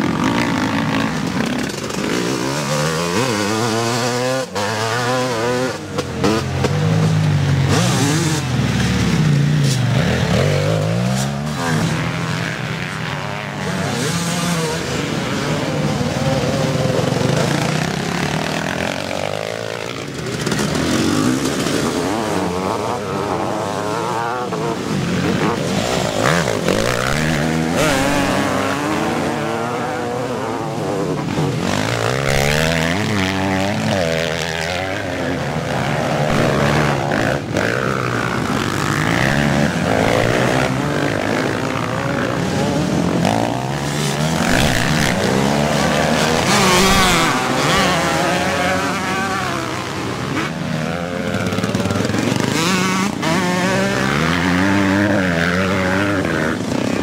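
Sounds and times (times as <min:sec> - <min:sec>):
motocross bikes revving: 0:00.0 - 0:57.0.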